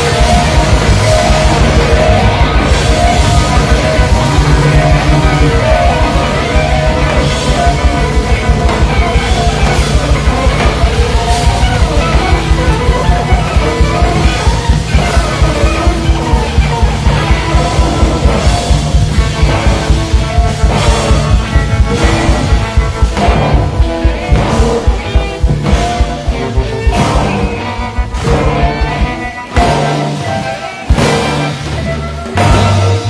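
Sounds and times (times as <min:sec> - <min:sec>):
loud rock music: 0:00.0 - 0:33.0.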